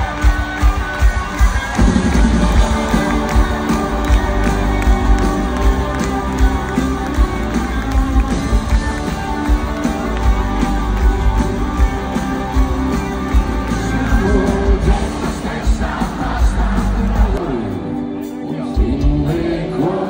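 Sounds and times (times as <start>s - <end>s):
steady drum beat: 0.0s - 17.5s
electric guitars: 0.0s - 20.0s
person singing: 1.8s - 10.6s, 13.4s - 20.0s.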